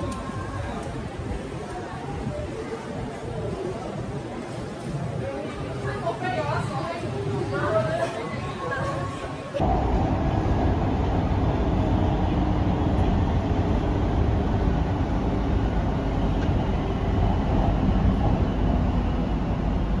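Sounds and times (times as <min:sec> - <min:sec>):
train rumbling: 0:00.0 - 0:20.0
wheels rushing on track: 0:09.6 - 0:20.0.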